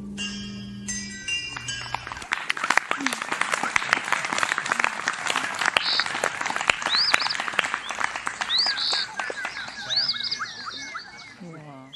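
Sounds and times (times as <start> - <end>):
bird-like whistled calls: 2.6 - 11.9.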